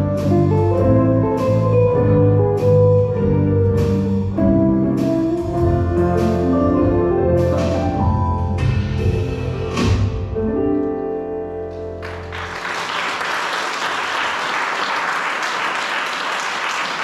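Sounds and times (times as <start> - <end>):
band chord with piano and bass: 0.0 - 12.9
audience applause: 12.0 - 17.0.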